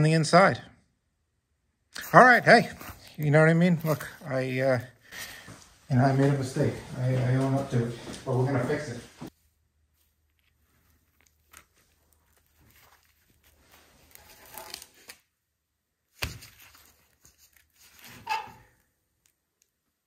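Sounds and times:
gloved hands rustling: 2.0s - 15.4s, 16.1s - 20.0s.

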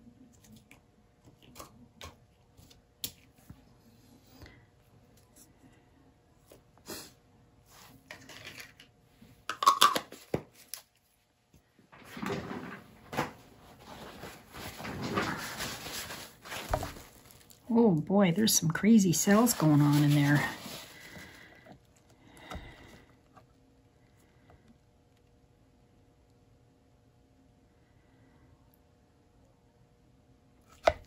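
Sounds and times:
rustling and rubbing: 12.3s - 17.7s, 18.4s - 21.6s.

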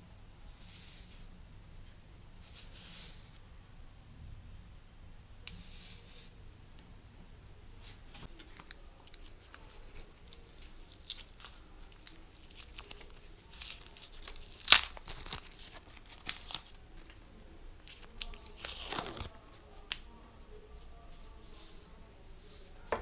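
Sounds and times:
tape and paper crackling: 7.8s - 20.2s
tape ripping: 8.3s - 17.2s, 17.9s - 20.0s
tape tearing: 8.3s - 17.2s, 17.9s - 20.0s.

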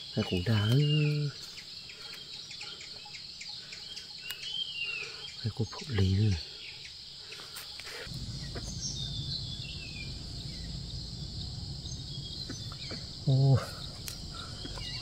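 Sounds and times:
high-pitched insect chorus: 0.0s - 15.0s
faint descending bird chirps: 8.1s - 15.0s
low rumble: 8.1s - 15.0s.

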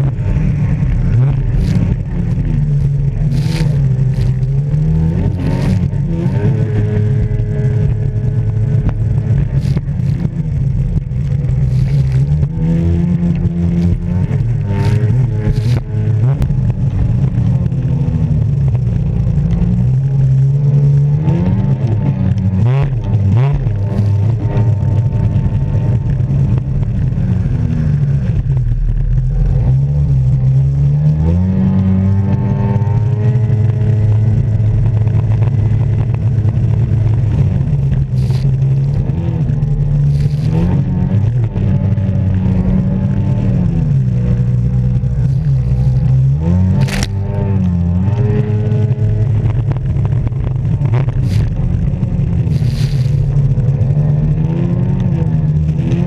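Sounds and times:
jet ski engine revving: 0.0s - 56.0s.

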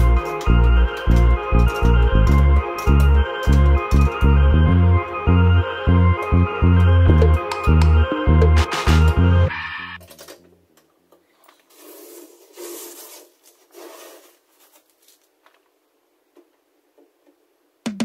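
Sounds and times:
background music: 0.0s - 10.0s
masking tape being peeled: 11.7s - 15.3s.

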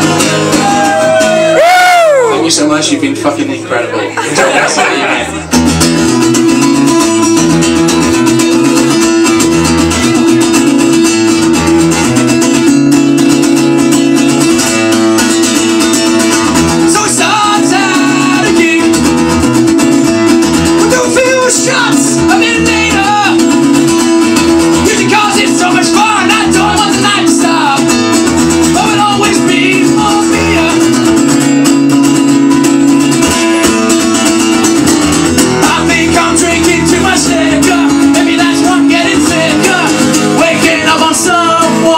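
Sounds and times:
acoustic guitar strumming: 0.0s - 41.9s
man singing: 16.7s - 19.4s, 20.7s - 23.8s, 24.8s - 31.3s, 35.5s - 41.9s.

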